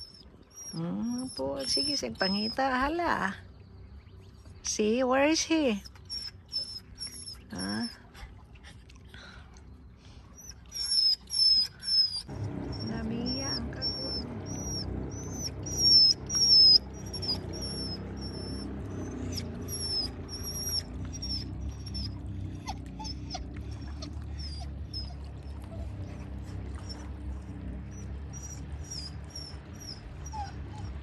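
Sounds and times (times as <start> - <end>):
small animal chirping: 0.0 - 2.8, 5.8 - 7.9, 10.4 - 23.4
low rumble: 12.2 - 31.0.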